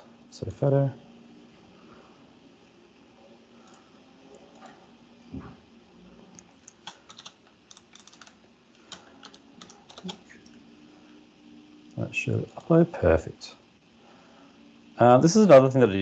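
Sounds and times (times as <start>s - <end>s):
typing on computer keyboard: 6.6s - 10.3s.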